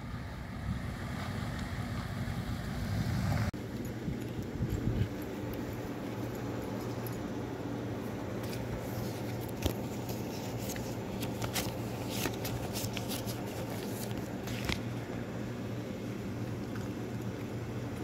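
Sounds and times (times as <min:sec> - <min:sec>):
paper banknotes rustling: 0:08.1 - 0:15.3.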